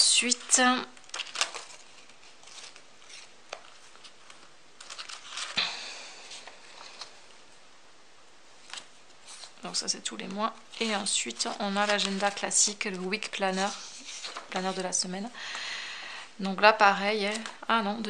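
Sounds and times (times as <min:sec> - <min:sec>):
paper pages rustling: 0:00.1 - 0:07.4, 0:08.6 - 0:15.2, 0:17.2 - 0:17.6.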